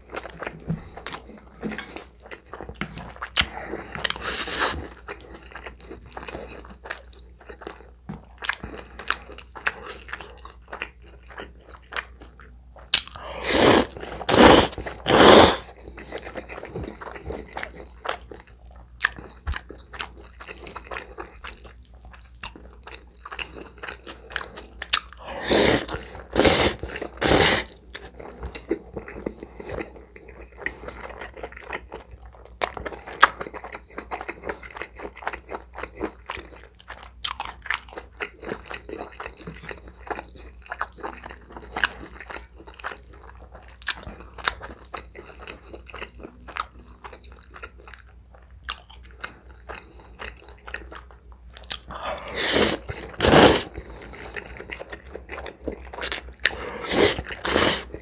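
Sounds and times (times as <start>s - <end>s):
loud noodle slurps: 13.2s - 15.7s, 25.2s - 27.7s, 51.9s - 54.2s, 56.5s - 58.0s
chewing with wet mouth clicks: 15.8s - 25.2s, 27.9s - 52.0s, 53.7s - 58.0s.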